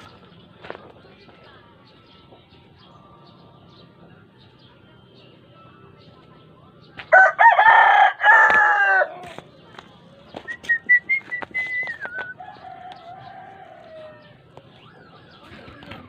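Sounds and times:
rooster crowing: 7.1 - 9.3, 12.4 - 14.4.

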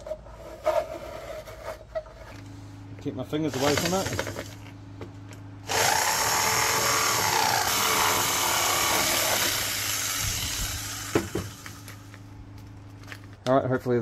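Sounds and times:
jigsaw cutting plastic: 3.5 - 4.5, 5.7 - 11.8.

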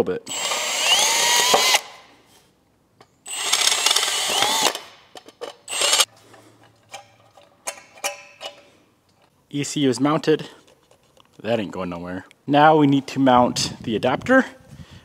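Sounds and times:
cordless drill whining: 0.3 - 2.0, 3.3 - 5.0, 5.7 - 6.1.

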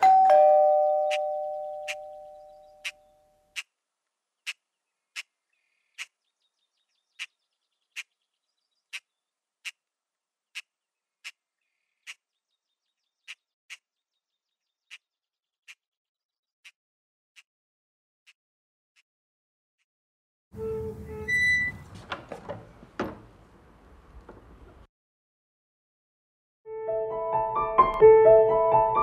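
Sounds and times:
small birds chirping: 1.1 - 16.8.

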